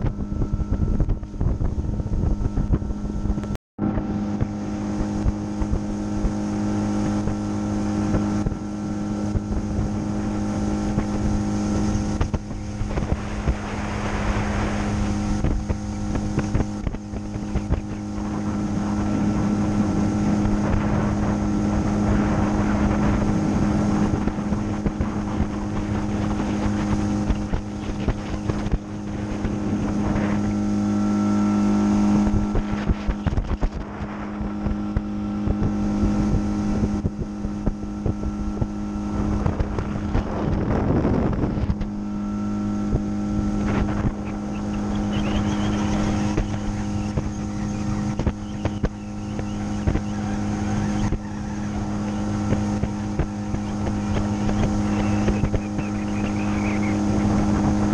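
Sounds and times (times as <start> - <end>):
outboard motor running: 0.0 - 57.9
wind on microphone: 0.0 - 57.9.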